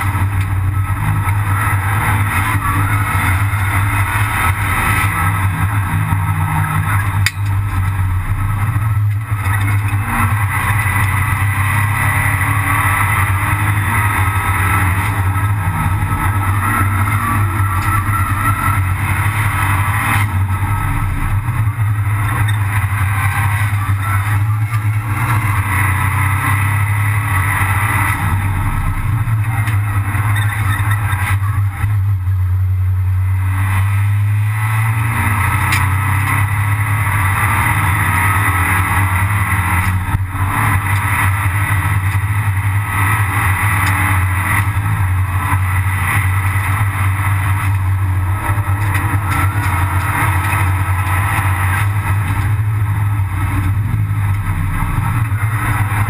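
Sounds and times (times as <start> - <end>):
car engine running hard: 0.0 - 56.0.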